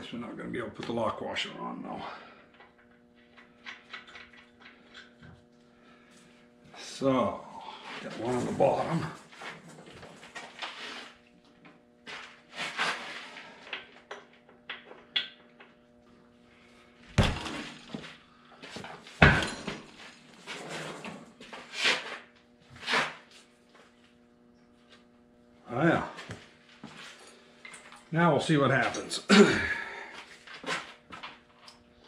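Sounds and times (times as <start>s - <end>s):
low steady hum: 0.0s - 32.0s
heavy thuds: 17.1s - 17.8s
metal clanks and knocks: 19.2s - 20.1s.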